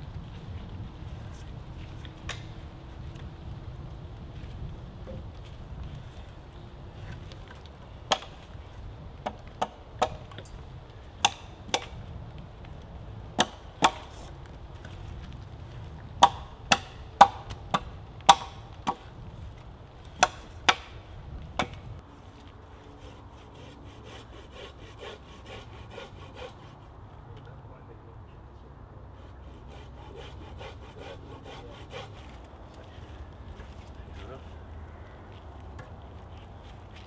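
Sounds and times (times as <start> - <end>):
hatchet chopping wooden post: 7.5 - 8.4, 9.2 - 10.6, 11.2 - 12.0, 13.4 - 14.3, 16.2 - 19.1, 20.1 - 21.0, 21.6 - 21.9.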